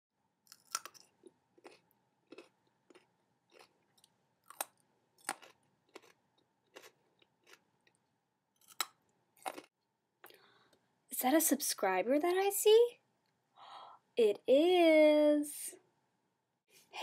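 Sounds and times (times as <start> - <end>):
carrot crunching: 0.5 - 8.0, 8.6 - 9.7.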